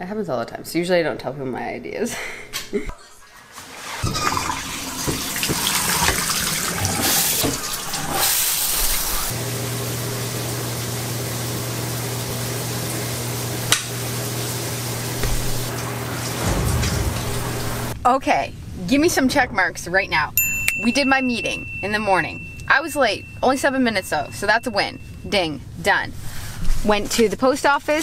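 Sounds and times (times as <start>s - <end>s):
shower water splashing into tub: 3.5s - 18.0s
steady low hum: 15.2s - 26.7s.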